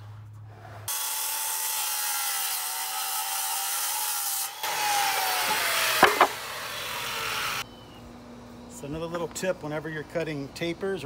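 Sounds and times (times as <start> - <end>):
circular saw cutting wood: 0.8 - 7.6
sharp knocks: 6.0 - 6.4.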